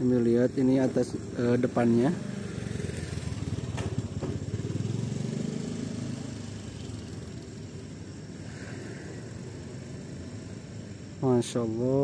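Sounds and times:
vehicle engine passing: 1.3s - 10.9s.

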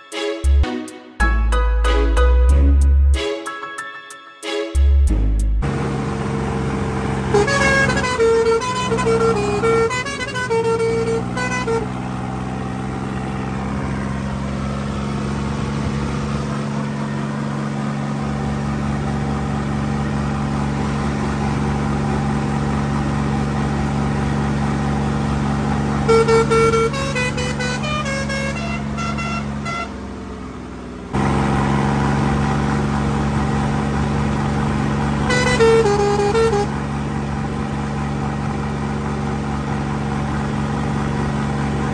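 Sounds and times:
tractor diesel engine running: 5.0s - 41.9s
air horns changing notes: 7.2s - 12.5s, 26.0s - 30.0s, 35.2s - 36.8s.

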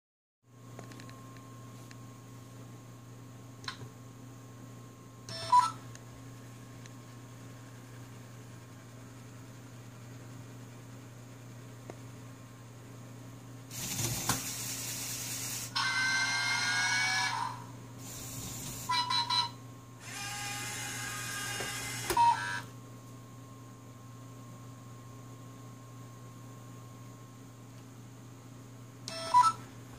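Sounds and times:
toy motors whining: 13.7s - 22.6s.

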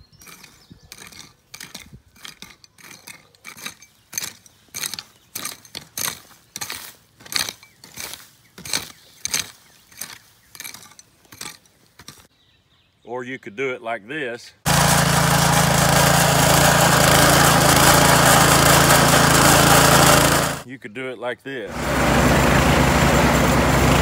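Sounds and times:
garden tool chopping soil: 0.0s - 12.3s, 14.7s - 20.6s.

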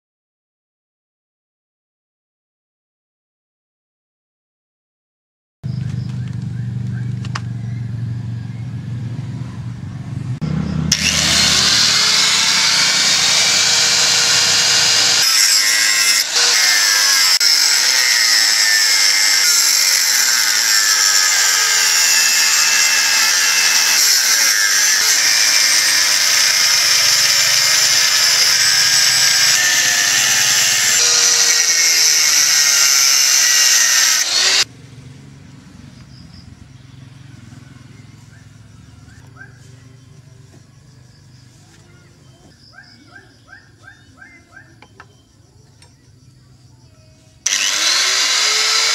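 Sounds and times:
angle grinder cutting steel: 10.9s - 34.7s, 47.4s - 48.9s.

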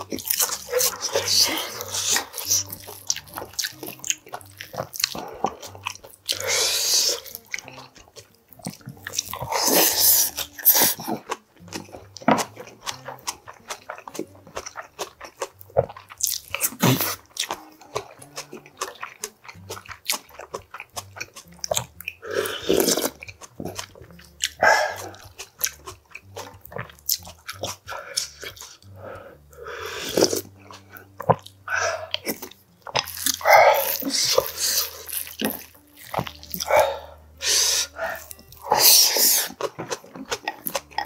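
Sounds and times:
chewing and lip smacking: 0.0s - 41.0s
slurping broth from spoon: 9.4s - 11.2s, 22.2s - 23.2s, 27.9s - 30.5s, 36.6s - 40.5s.

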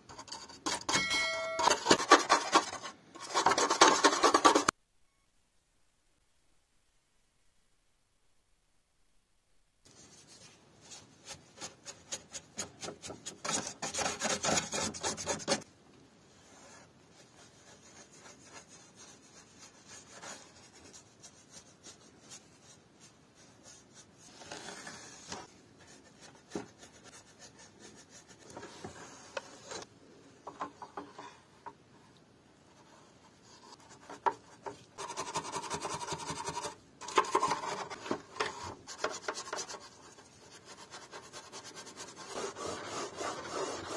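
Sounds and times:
brush scrubbing plastic: 1.9s - 4.7s, 34.1s - 43.9s.

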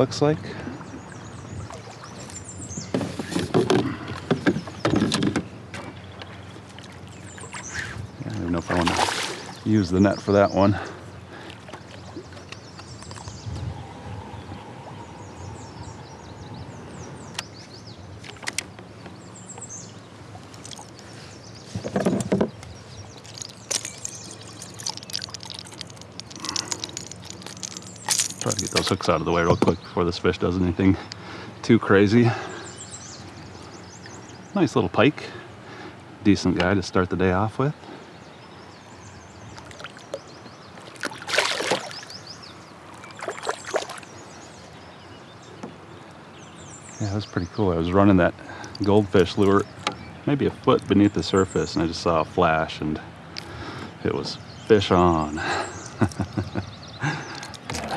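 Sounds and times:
fish thrashing and splashing water: 8.7s - 9.7s, 20.4s - 21.1s, 23.1s - 28.9s, 40.8s - 44.2s
fishing tackle clicks: 22.6s - 29.0s.

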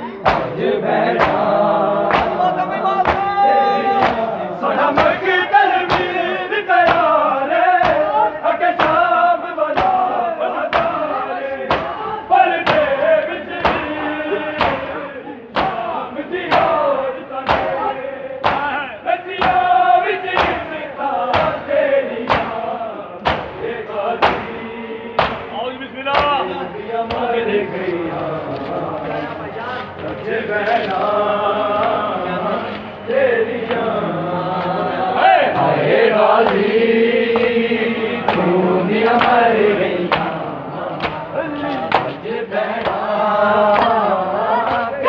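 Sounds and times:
men chanting in unison: 0.0s - 45.0s
palms slapping chests: 0.2s - 3.4s, 22.3s - 23.6s.

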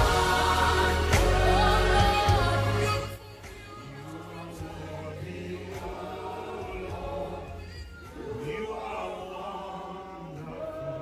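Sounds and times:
sustained keyboard and bass: 0.0s - 3.2s
voices singing wordless lines: 0.0s - 11.0s.

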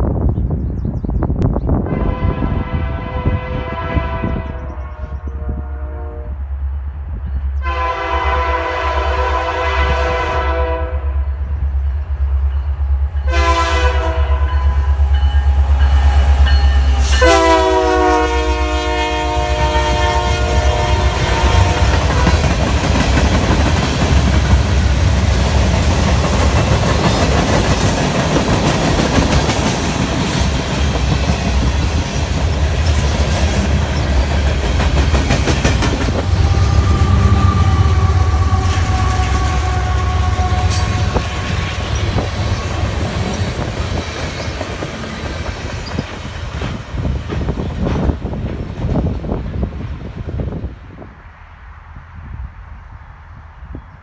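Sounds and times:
freight train rumble: 0.0s - 54.0s
locomotive horn blasts: 1.8s - 6.4s, 7.6s - 11.2s, 13.2s - 22.5s, 36.2s - 43.0s
train wheel clatter: 21.5s - 36.6s, 40.7s - 50.1s.

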